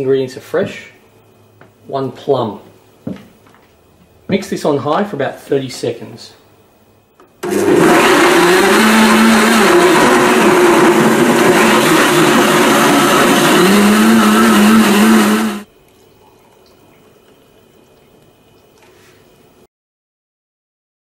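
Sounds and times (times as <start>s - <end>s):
blender running on high: 7.4s - 15.7s.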